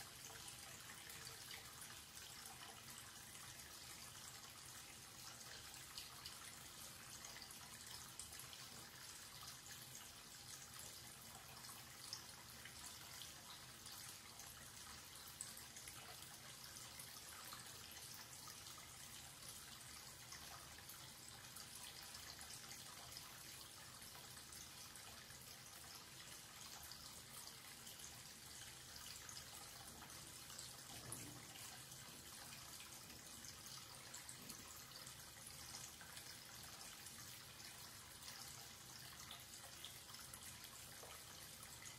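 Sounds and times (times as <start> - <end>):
tap water trickling into basin: 0.0 - 41.9.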